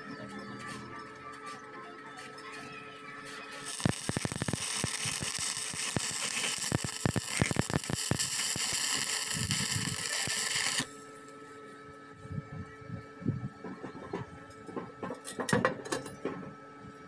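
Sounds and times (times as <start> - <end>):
welding arc crackling and sizzling: 3.3 - 10.9.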